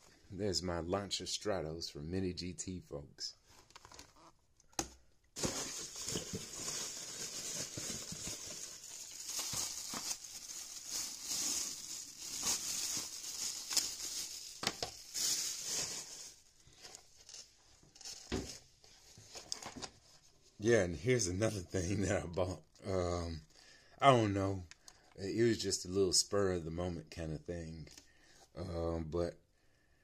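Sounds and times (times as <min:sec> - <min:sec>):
plastic bag rustling: 0:05.4 - 0:19.9.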